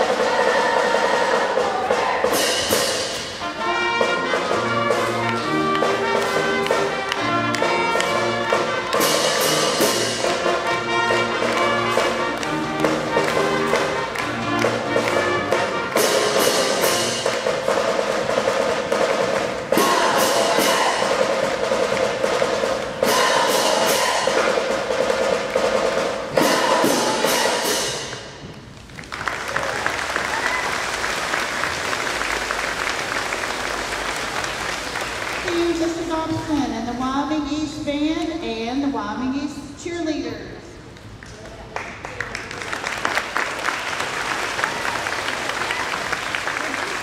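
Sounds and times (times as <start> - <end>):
steady drum beat: 0.0 - 28.6
brass horns playing chords: 3.2 - 17.6.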